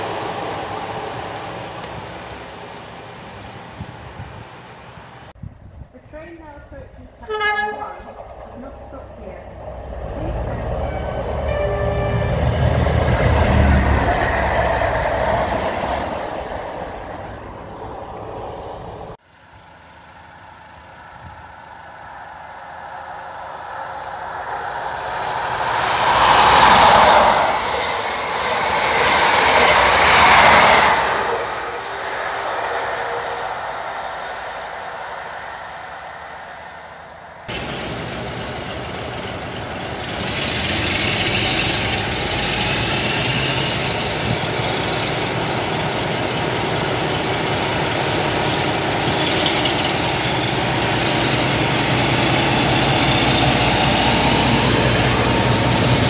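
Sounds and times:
diesel locomotive running: 0.0 - 56.0
trains passing at speed: 0.0 - 56.0
high squeal from train: 7.2 - 16.4, 21.1 - 56.0.

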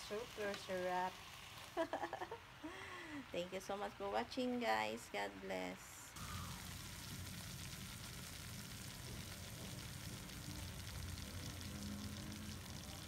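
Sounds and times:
meat sizzling in a pan: 0.0 - 2.1, 6.2 - 13.0.

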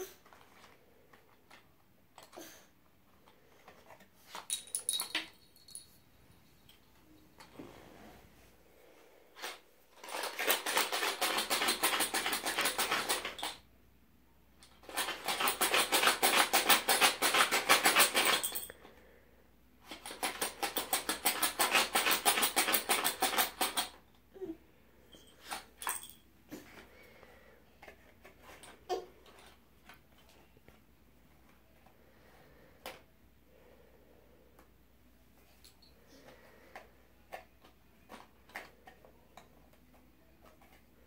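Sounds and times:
pencils rattling in a box: 0.0 - 2.4, 9.4 - 13.7, 14.6 - 19.0, 19.8 - 24.0, 25.1 - 30.8, 35.8 - 41.0.

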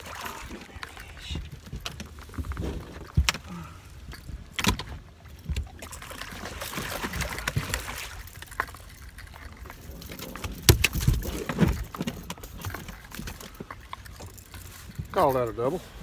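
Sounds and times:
fishing gear knocking and clicking: 7.2 - 15.5.

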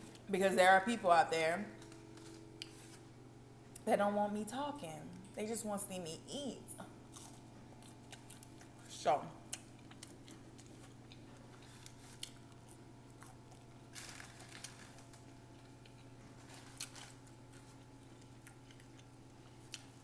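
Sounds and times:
steady low hum: 0.0 - 20.0
chewing mouth sounds: 9.5 - 13.7
paper rustle: 13.9 - 15.2.

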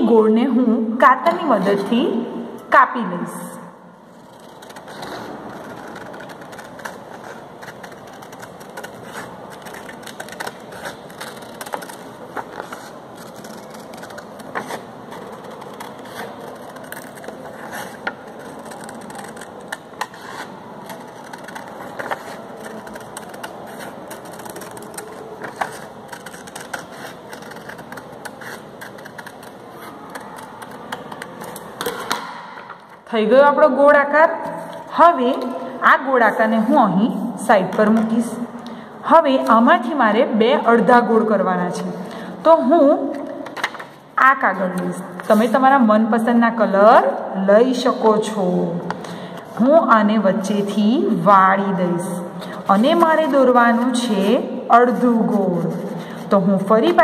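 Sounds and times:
paper rustling: 4.1 - 32.3
scissors snipping paper: 4.2 - 32.3.

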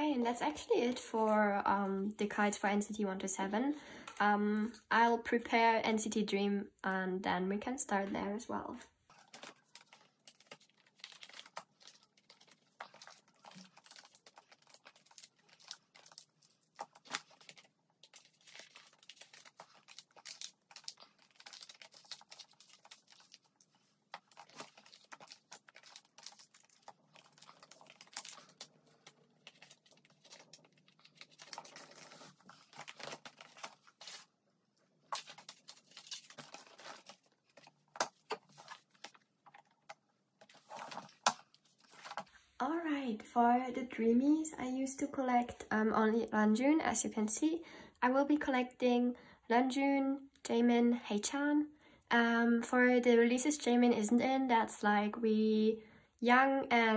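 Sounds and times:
plastic sleeves crinkling: 9.0 - 42.4.

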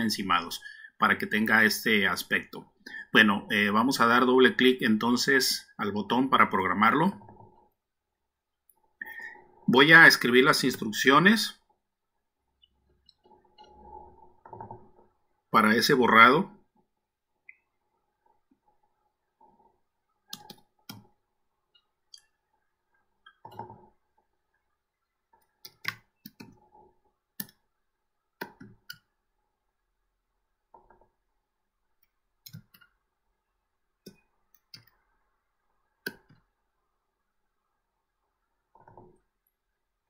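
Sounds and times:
computer keyboard keys clicking: 20.3 - 21.1.

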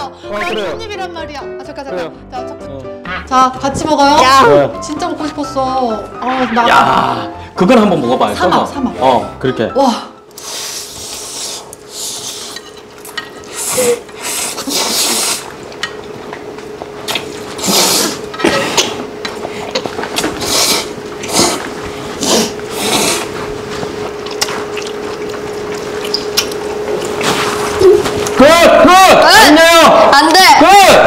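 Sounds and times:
people slurping noodles: 10.4 - 12.6, 13.4 - 15.7, 17.0 - 28.4.

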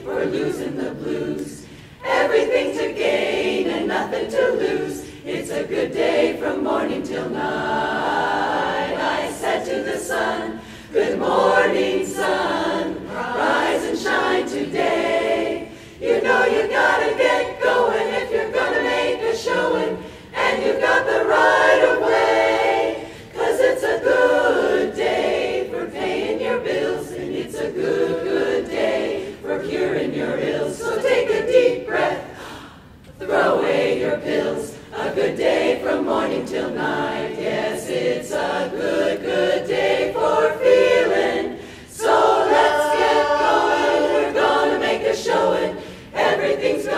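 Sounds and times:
women's chorus singing a cappella: 0.0 - 46.9.

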